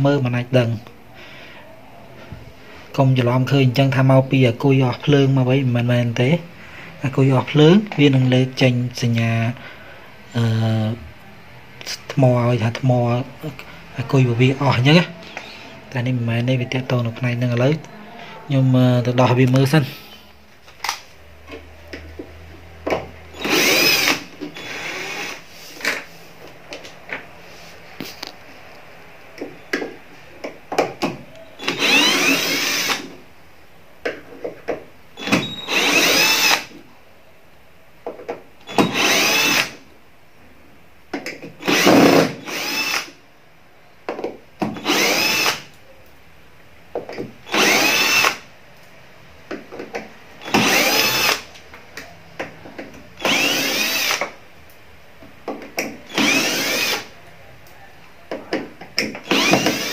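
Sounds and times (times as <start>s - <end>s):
cordless drill motor whine: 23.4s - 25.4s, 31.6s - 33.1s, 35.2s - 36.7s, 38.7s - 39.8s, 41.6s - 43.2s, 44.8s - 45.6s, 47.5s - 48.4s, 50.4s - 51.5s, 53.2s - 54.2s, 56.1s - 57.1s, 59.2s - 59.9s.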